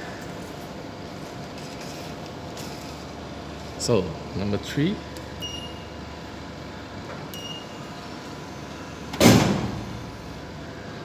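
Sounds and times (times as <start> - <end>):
short electronic beeps: 5.4 - 6.0, 7.4 - 7.8.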